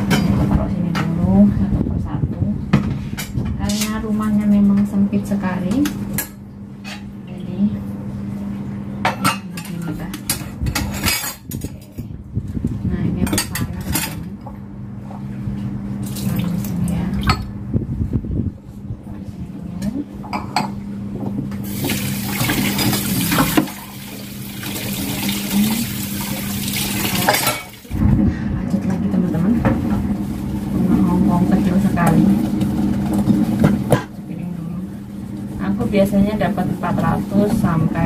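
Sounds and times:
steady low hum: 0:00.0 - 0:38.0
tap running: 0:21.2 - 0:28.0
metal utensils clinking: 0:27.1 - 0:27.8.

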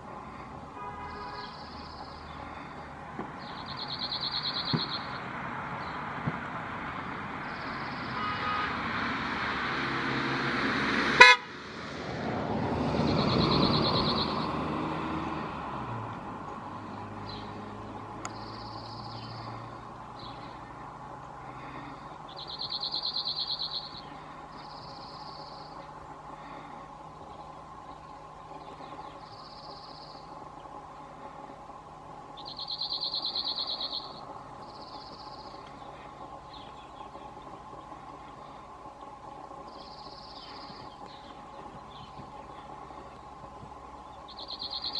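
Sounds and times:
background traffic noise: 0:00.0 - 0:44.9
vehicle horn toot: 0:00.8 - 0:01.6, 0:08.1 - 0:08.8, 0:11.2 - 0:11.5
bird singing a fast trill: 0:03.4 - 0:05.2, 0:13.1 - 0:14.5, 0:18.3 - 0:19.5, 0:22.3 - 0:25.8, 0:27.3 - 0:30.4, 0:32.4 - 0:37.6, 0:39.7 - 0:42.7, 0:44.0 - 0:44.9.

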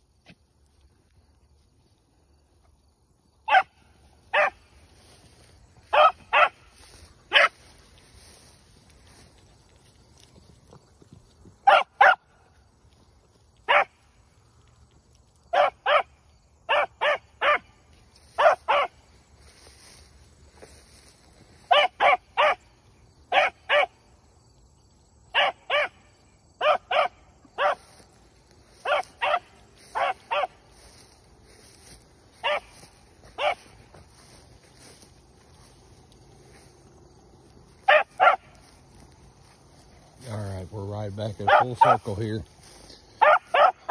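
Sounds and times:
dog barking: 0:03.5 - 0:04.6, 0:05.9 - 0:06.6, 0:07.3 - 0:07.6, 0:11.6 - 0:12.3, 0:13.7 - 0:14.0, 0:15.5 - 0:17.7, 0:18.4 - 0:19.0, 0:21.7 - 0:22.6, 0:23.3 - 0:24.0, 0:25.3 - 0:26.0, 0:26.6 - 0:27.9, 0:28.8 - 0:30.6, 0:32.4 - 0:32.8, 0:33.4 - 0:33.7, 0:37.8 - 0:38.5, 0:41.4 - 0:42.2, 0:43.2 - 0:43.9.

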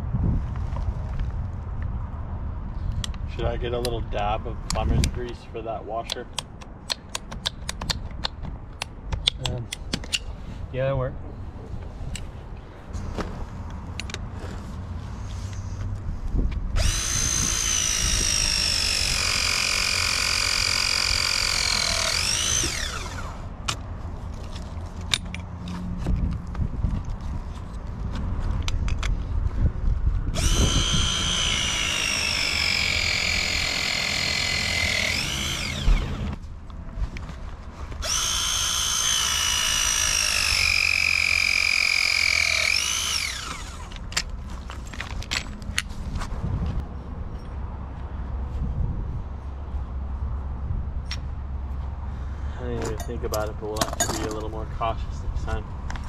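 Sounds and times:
press tool motor whine: 0:16.8 - 0:23.5, 0:30.4 - 0:36.4, 0:38.0 - 0:44.0.

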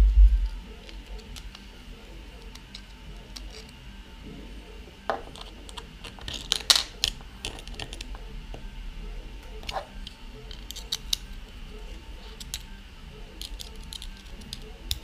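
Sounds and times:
plastic and metal handling clicks: 0:05.2 - 0:08.1, 0:13.4 - 0:15.0.

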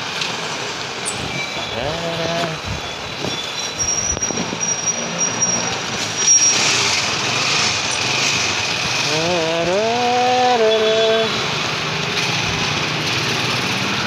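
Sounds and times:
vehicle engines running: 0:00.0 - 0:14.0
thin high squeal: 0:03.3 - 0:07.0.

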